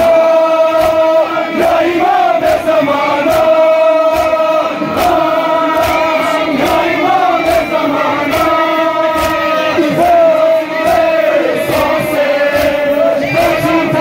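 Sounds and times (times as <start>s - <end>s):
crowd: 0.0s - 14.0s
man leading chant: 0.0s - 14.0s
men chanting together: 0.0s - 14.0s
chest-beating slaps: 2.4s - 10.2s, 11.7s - 13.6s.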